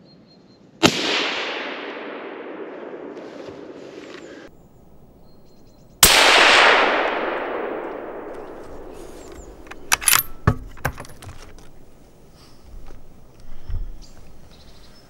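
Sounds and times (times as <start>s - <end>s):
rifle shot with echo: 0.8s - 4.5s, 6.0s - 10.8s
metallic clicks and clinks: 9.4s - 11.7s.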